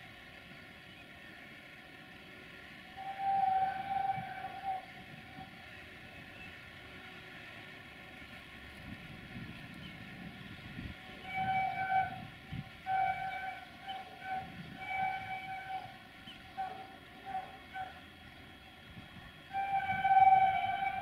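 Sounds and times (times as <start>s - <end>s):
locomotive horn honking: 2.9s - 5.6s, 11.1s - 18.1s, 19.4s - 21.0s.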